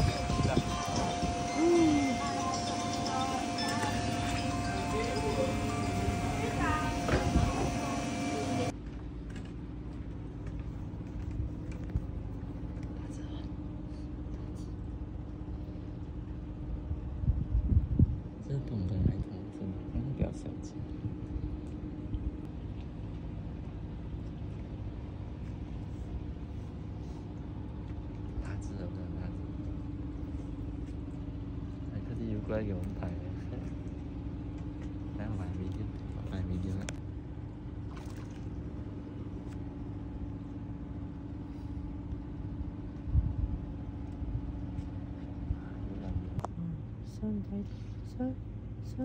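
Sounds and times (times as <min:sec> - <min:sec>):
engine humming: 0:00.0 - 0:08.8
low mechanical rumble with hum: 0:00.0 - 0:49.0.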